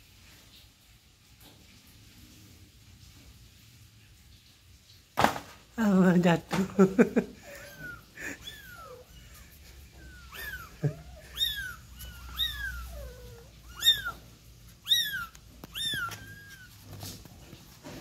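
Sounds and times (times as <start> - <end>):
kittens mewing: 7.3 - 17.2.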